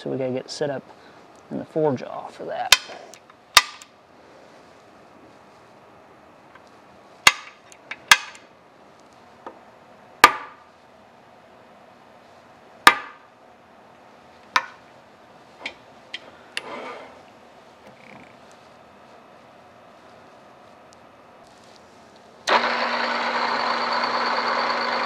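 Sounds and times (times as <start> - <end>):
hammer striking metal: 10.2 - 10.6, 12.9 - 13.2.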